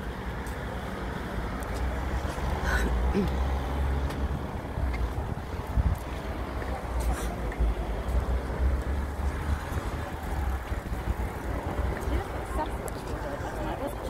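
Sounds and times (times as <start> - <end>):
wind buffeting microphone: 4.2 - 14.0.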